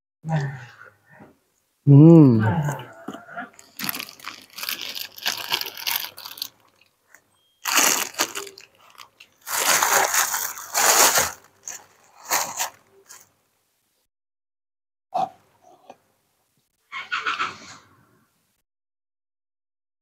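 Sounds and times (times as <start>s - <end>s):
chewing: 2.6s - 7.2s
plastic bags crinkling: 3.5s - 13.3s.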